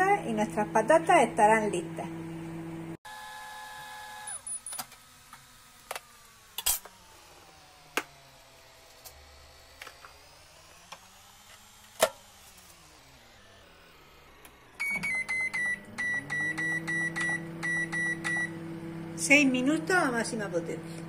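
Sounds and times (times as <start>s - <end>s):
microwave oven humming: 0.2s - 21.0s.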